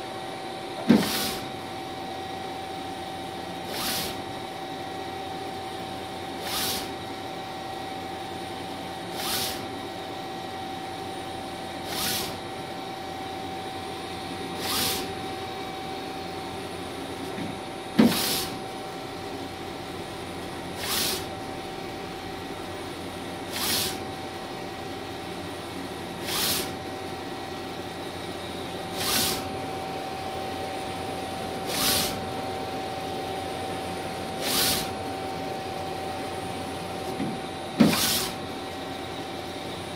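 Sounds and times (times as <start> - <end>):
printer machine hum and whine: 0.0 - 39.9
print carriage swish: 20.8 - 21.3, 26.2 - 26.8, 28.9 - 29.5, 31.6 - 32.2, 34.4 - 34.9, 37.2 - 38.4.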